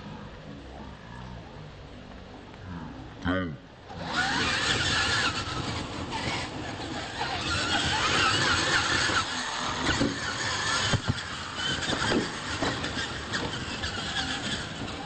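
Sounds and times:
electric toy truck motors whining: 3.9 - 15.0
tyres rustling on dirt: 3.9 - 15.0.

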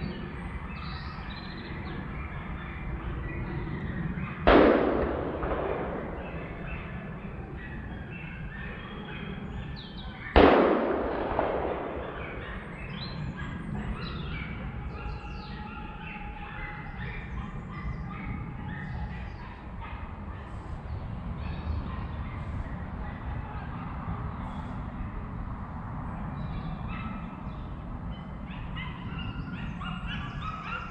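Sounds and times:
distant calls: 0.0 - 25.2, 26.0 - 30.9
gunshot echoing: 4.4 - 7.0, 10.3 - 13.1.

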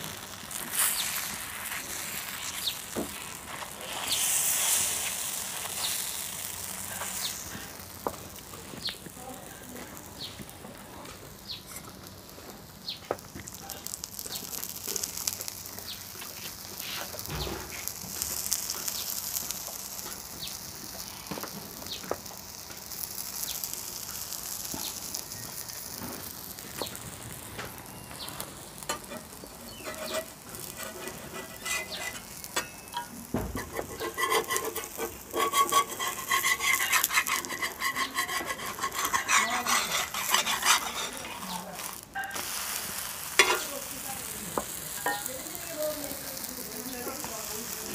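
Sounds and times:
pancake sizzling in oil: 0.0 - 47.9
metal spatula scraping pan: 28.8 - 42.4, 43.4 - 43.7.

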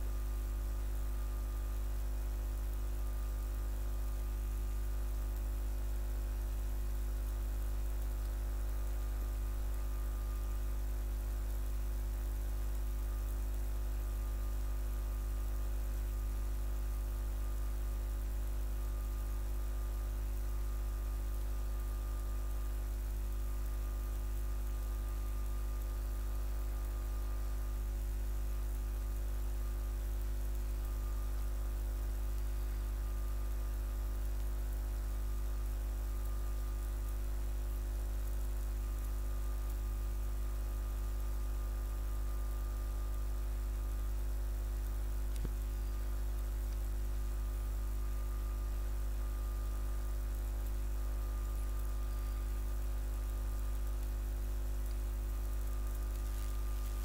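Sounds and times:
faint hiss: 0.0 - 57.0
low electrical hum: 0.0 - 57.0
faint click: 45.3 - 45.6.

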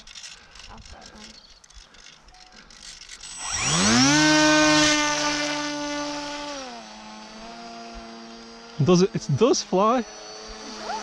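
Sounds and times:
model aeroplane motor whine: 2.5 - 11.0.

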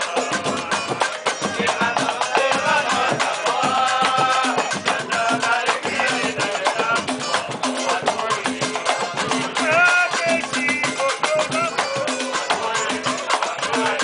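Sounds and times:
cavaquinho strumming: 0.0 - 14.0
pandeiro: 0.0 - 14.0
surdo drum beat: 0.0 - 14.0
voices singing together: 0.0 - 14.0.

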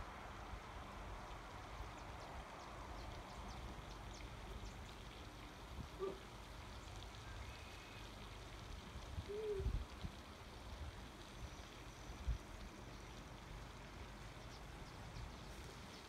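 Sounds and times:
running water: 0.0 - 16.0.

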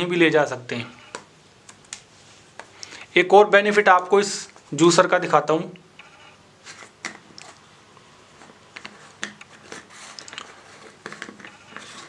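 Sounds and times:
plastic threads scraping: 8.4 - 12.0.

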